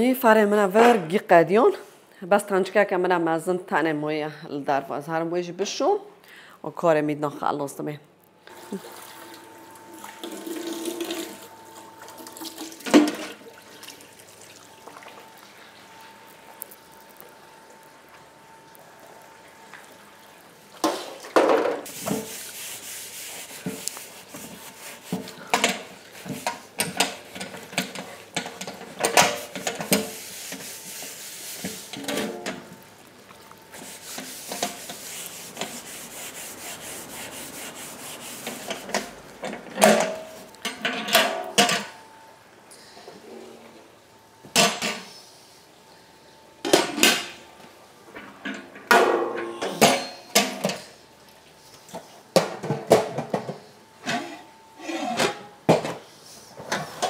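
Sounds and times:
running tap water: 0:08.5 - 0:15.6.

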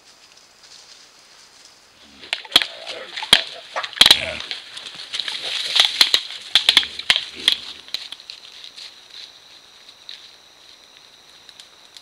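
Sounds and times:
animal snuffling: 0:02.0 - 0:06.1.

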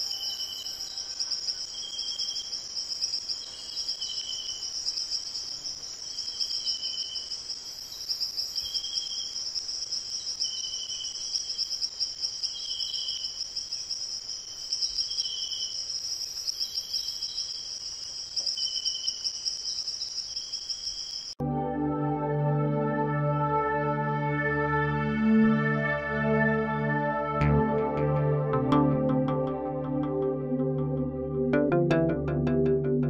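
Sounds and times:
insect chirp: 0:00.0 - 0:21.4
insects trilling: 0:00.0 - 0:21.4
ambient synthesizer music: 0:21.4 - 0:33.0.

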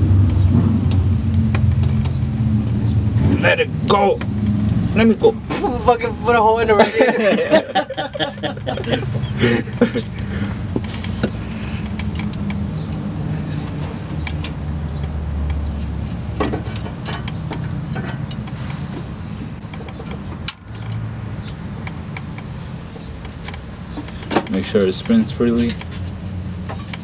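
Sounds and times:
light metallic clicks and knocks: 0:10.7 - 0:15.6, 0:16.4 - 0:27.0.

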